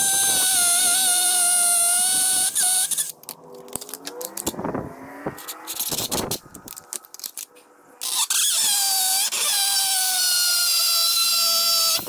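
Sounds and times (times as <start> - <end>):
cordless drill whining: 0.0 - 4.5, 8.0 - 12.0.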